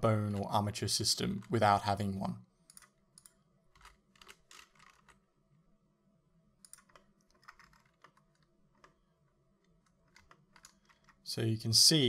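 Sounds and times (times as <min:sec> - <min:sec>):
keyboard and mouse clicks: 0:02.7 - 0:05.2, 0:06.6 - 0:09.0, 0:09.6 - 0:11.2.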